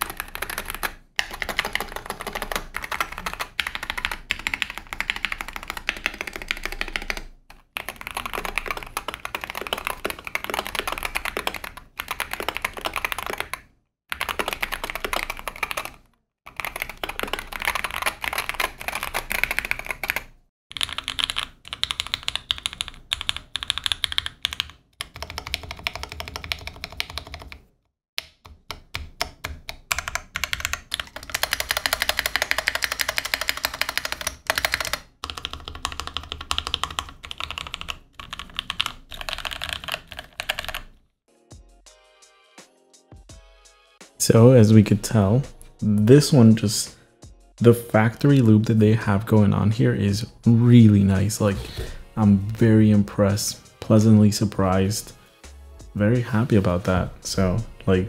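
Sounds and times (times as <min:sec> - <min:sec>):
keyboard typing clatter: 0:00.0 - 0:27.6, 0:28.4 - 0:41.0.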